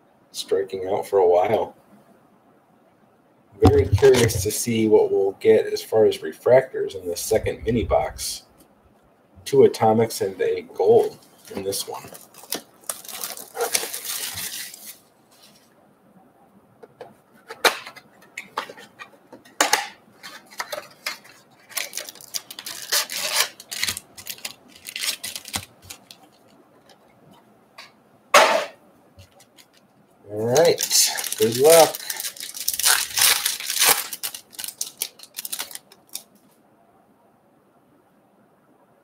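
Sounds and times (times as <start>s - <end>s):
foil packs crinkling: 3.7s - 4.4s, 10.8s - 15.6s, 17.5s - 27.0s, 29.2s - 29.8s, 30.4s - 36.4s.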